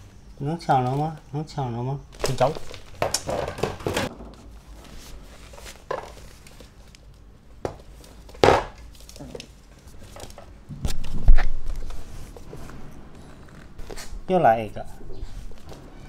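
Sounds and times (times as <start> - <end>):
taps on wooden floor: 7.6 - 8.8.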